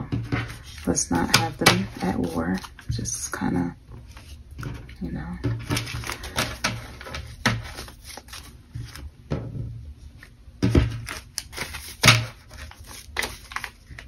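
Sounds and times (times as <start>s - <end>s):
banknotes rustling: 0.4s - 3.4s, 5.7s - 9.1s, 10.9s - 14.0s.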